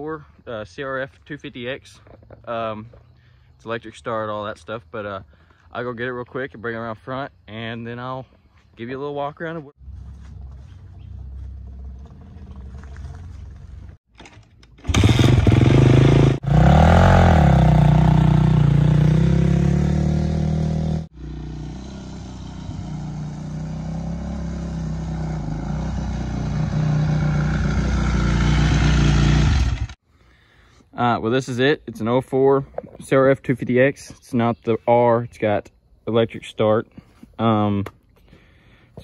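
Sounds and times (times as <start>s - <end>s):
dirt bike engine revving: 14.8s - 30.0s.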